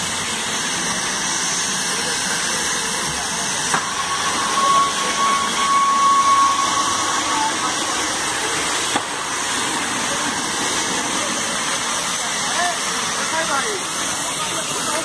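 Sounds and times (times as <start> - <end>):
fire hissing rush: 0.0 - 15.0
thin whistle-like tone: 3.8 - 8.1.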